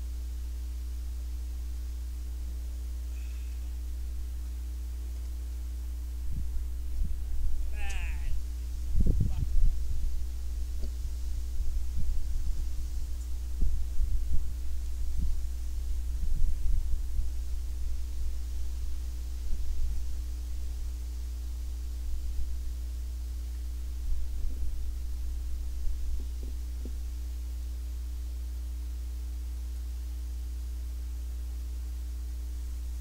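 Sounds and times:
wind buffeting microphone: 6.2s - 21.0s, 23.9s - 27.1s.

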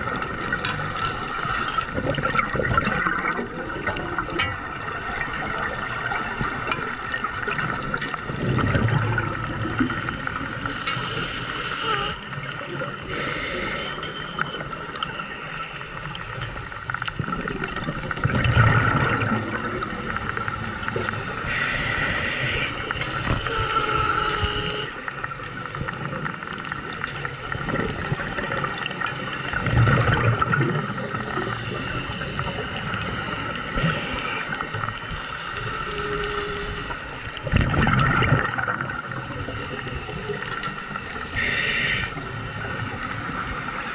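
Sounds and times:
steady watery hiss: 0.0s - 4.0s, 4.7s - 8.8s, 9.4s - 37.6s, 38.6s - 43.9s
regulator inhalation hiss: 10.6s - 12.3s, 13.1s - 14.0s, 20.2s - 25.9s, 33.8s - 34.6s, 39.1s - 42.2s
bubbly exhalations: 37.4s - 38.9s.

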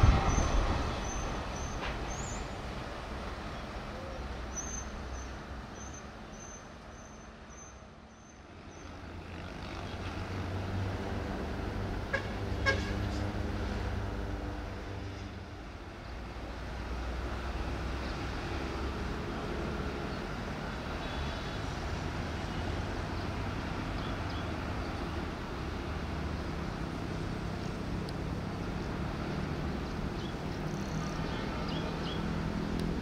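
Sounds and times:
diesel locomotive rumbling: 0.0s - 33.0s.

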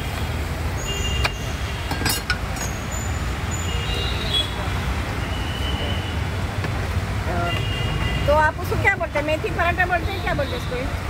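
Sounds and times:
metal utensils clinking on griddles: 1.9s - 2.8s.

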